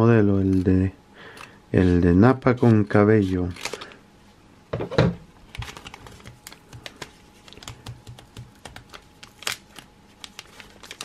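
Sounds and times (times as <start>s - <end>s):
foil pack crinkling: 5.4s - 11.0s.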